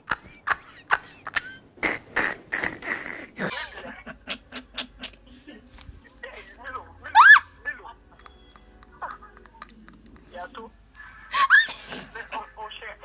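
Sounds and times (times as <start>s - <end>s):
man laughing: 3.2s - 5.6s.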